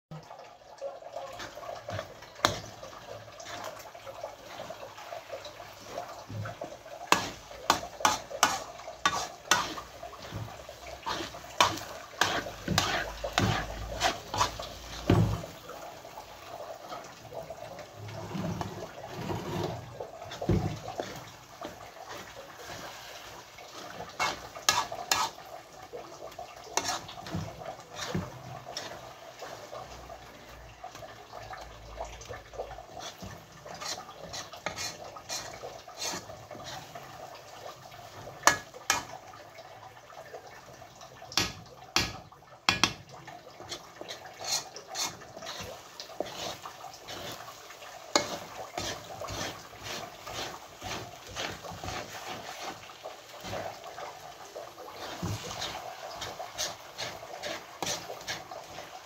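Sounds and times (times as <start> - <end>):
spoon clinking and scraping pan: 5.8 - 15.5, 18.3 - 25.5, 26.3 - 29.6, 32.6 - 37.0, 38.4 - 39.2, 43.6 - 52.8, 55.0 - 59.0.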